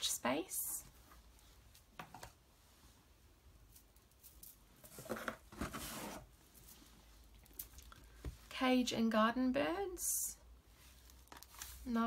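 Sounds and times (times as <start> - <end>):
book rustling: 4.8 - 6.3, 10.8 - 11.8
book shuffling: 4.8 - 6.3, 10.9 - 11.8.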